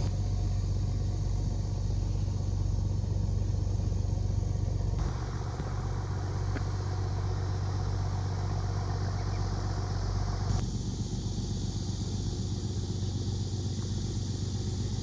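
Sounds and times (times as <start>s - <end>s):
engine humming: 0.0s - 15.0s
high hiss: 0.0s - 15.0s.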